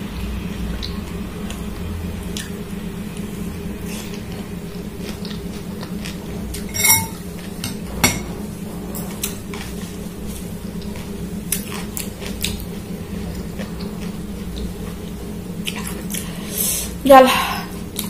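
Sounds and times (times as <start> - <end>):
cutlery clinking against glass bowl: 6.6 - 8.2.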